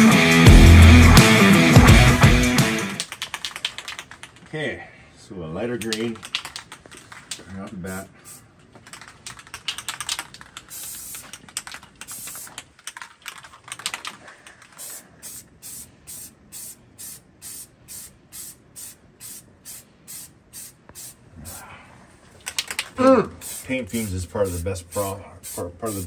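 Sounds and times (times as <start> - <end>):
spray paint can hissing: 8.2 - 21.6, 22.4 - 26.0.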